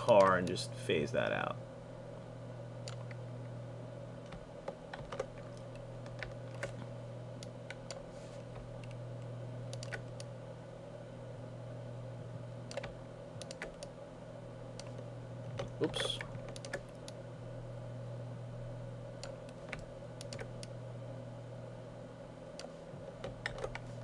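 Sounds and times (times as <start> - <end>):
keyboard and mouse clicks: 0.0 - 0.6, 4.2 - 9.0, 9.7 - 10.3, 12.7 - 13.9, 14.8 - 17.2, 19.2 - 20.7, 22.6 - 23.9
steady low hum: 0.0 - 24.0.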